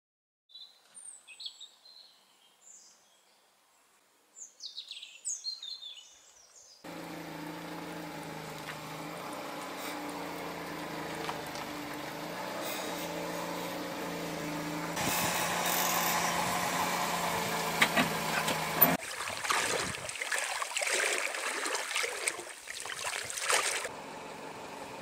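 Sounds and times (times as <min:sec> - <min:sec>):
birds chirping and singing: 0:04.4 - 0:06.8
vehicle engine hum: 0:06.9 - 0:19.1, 0:23.4 - 0:25.0.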